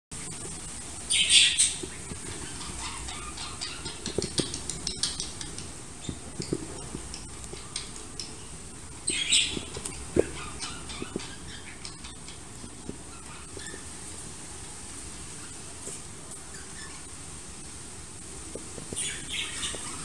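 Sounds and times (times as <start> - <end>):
budgerigars raspy chirping: 1.1 - 6.2, 9.0 - 13.8, 19.0 - 20.0.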